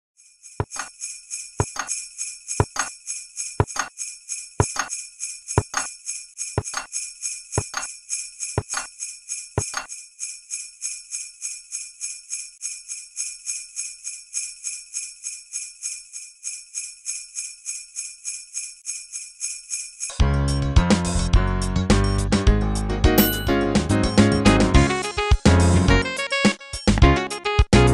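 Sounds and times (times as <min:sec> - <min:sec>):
jingle bells shaken: 0:00.2 - 0:20.2, 0:23.2 - 0:23.8.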